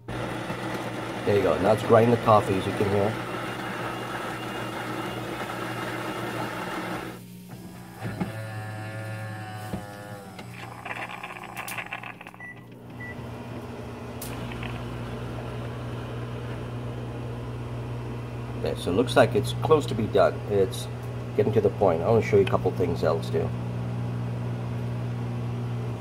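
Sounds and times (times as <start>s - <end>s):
coffee grinder grinding beans: 0.0s - 12.6s, 14.2s - 15.8s
machine motors humming and whirring: 0.0s - 16.8s.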